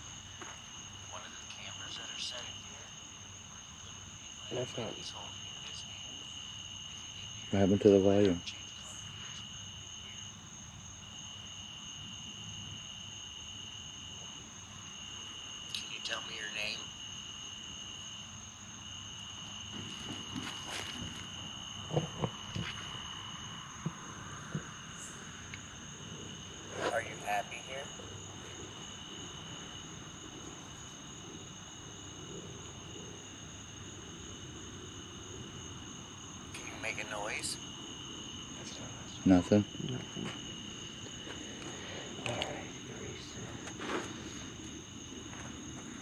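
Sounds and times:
night insects trilling: 0:00.0 - 0:46.0.

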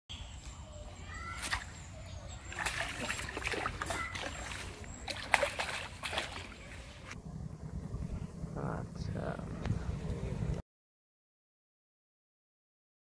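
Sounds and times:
fish splashing in water: 0:02.4 - 0:07.2.

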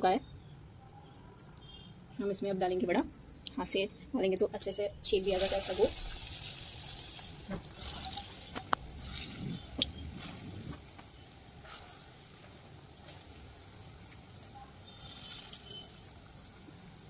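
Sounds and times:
batter frying in sizzling oil: 0:05.1 - 0:17.0.

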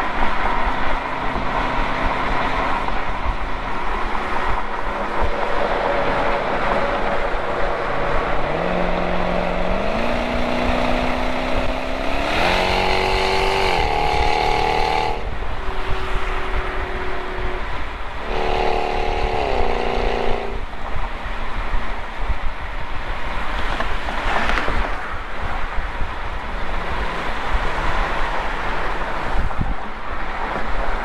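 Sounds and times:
wind and road rush: 0:00.0 - 0:31.0
droning car exhaust: 0:07.2 - 0:21.0.

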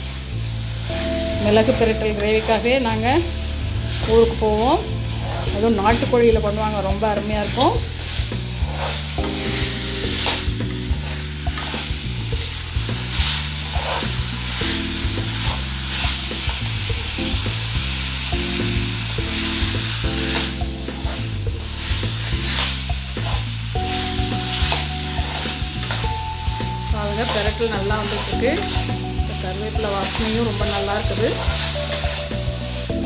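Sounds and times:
food sizzling in oil: 0:00.0 - 0:33.0
low background music: 0:00.0 - 0:33.0
spatula scraping pan: 0:04.9 - 0:06.1, 0:07.4 - 0:12.1, 0:13.0 - 0:14.6, 0:20.2 - 0:21.9, 0:27.1 - 0:32.4.

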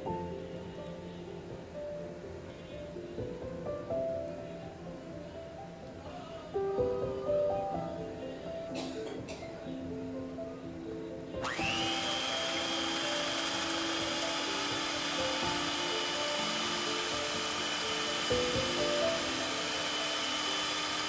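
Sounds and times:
background music: 0:00.0 - 0:21.0
electric mixer motor whining: 0:11.4 - 0:21.0.

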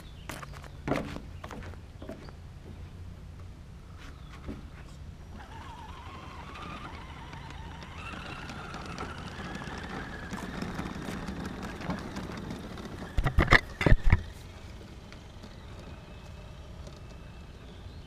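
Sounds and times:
electric motor and gears whining: 0:05.3 - 0:18.0.

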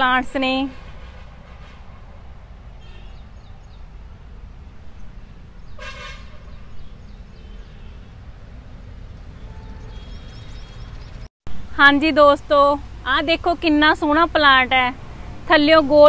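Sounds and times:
vehicle horn toot: 0:02.8 - 0:03.2, 0:05.8 - 0:06.7, 0:09.4 - 0:10.8.

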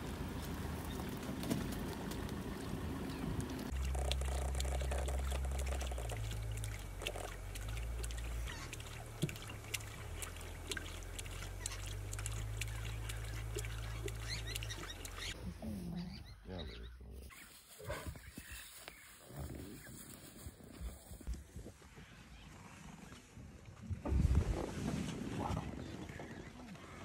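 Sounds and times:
low steady hum: 0:00.0 - 0:16.6
lion lapping water: 0:00.9 - 0:15.4.

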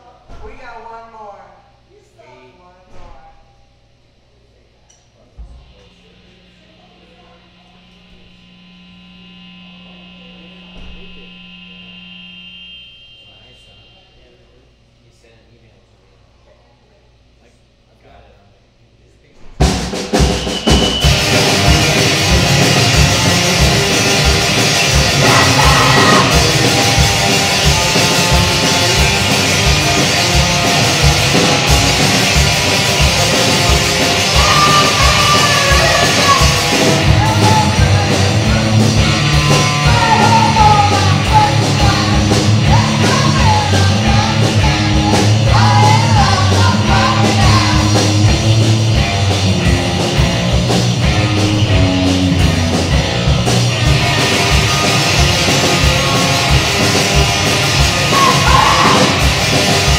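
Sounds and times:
fast drum beat: 0:19.6 - 0:59.9
punk band playing loud: 0:19.6 - 0:59.9
yelled vocals: 0:21.0 - 0:59.9.

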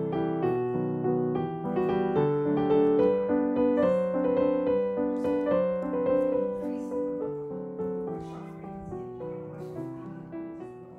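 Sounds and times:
piano melody of held notes: 0:00.0 - 0:10.9.

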